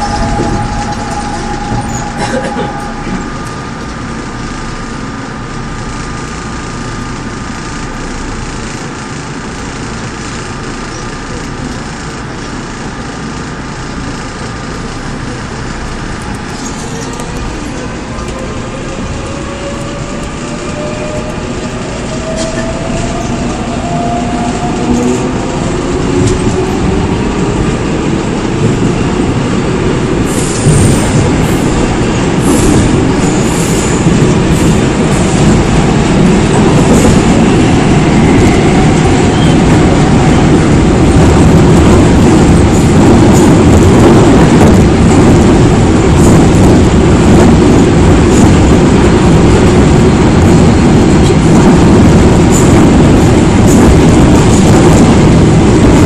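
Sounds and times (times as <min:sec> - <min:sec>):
traction motors whining: 0:00.0 - 0:05.6, 0:14.7 - 0:28.9
train wheel and rail noise: 0:00.0 - 0:56.0.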